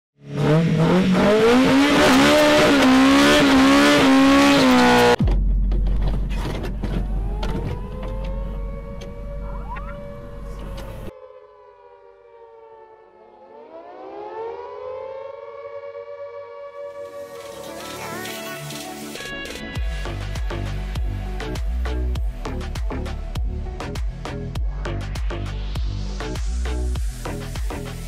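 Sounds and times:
deep rumble: 0:05.2 - 0:11.1
air-raid siren winding up: 0:07.0 - 0:11.1, 0:16.7 - 0:19.8
noisy wavering wail: 0:07.0 - 0:11.6.

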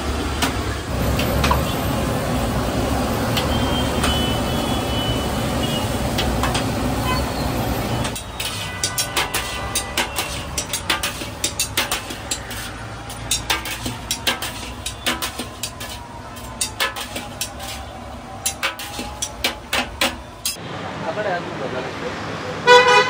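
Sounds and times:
metal utensils clanking on wok: 0:06.1 - 0:20.6.

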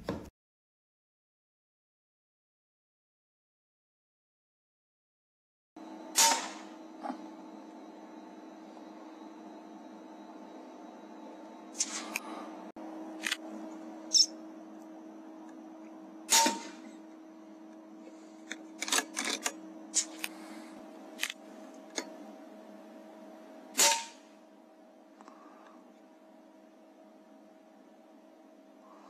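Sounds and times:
steady electrical hum: 0:05.8 - 0:29.0
air rifle shots: 0:06.2 - 0:06.7, 0:16.3 - 0:16.9, 0:23.8 - 0:24.3.

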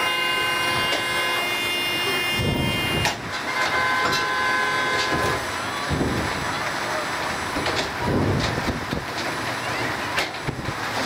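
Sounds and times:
car horns blasting: 0:00.0 - 0:05.5.

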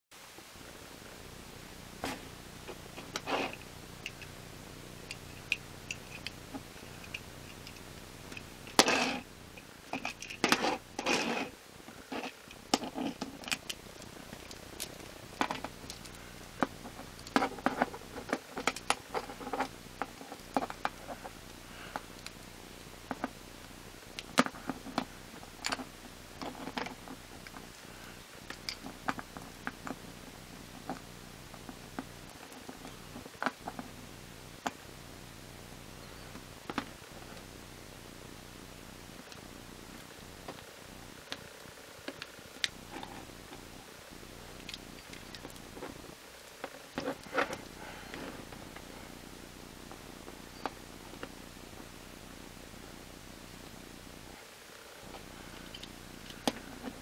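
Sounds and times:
faint steady hum: 0:00.1 - 0:57.0
fingers rustling: 0:02.0 - 0:22.4.

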